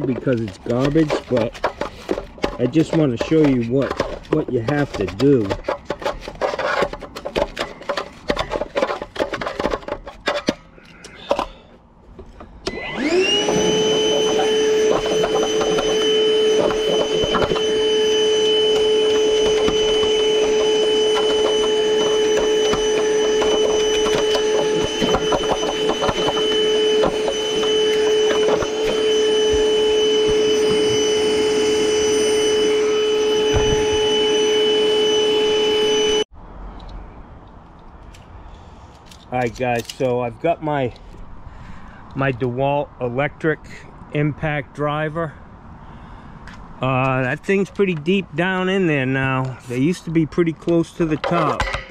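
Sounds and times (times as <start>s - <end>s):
metal tool scraping debris: 0.0s - 11.6s, 13.4s - 32.9s, 50.6s - 51.9s
vacuum whining: 12.3s - 36.3s.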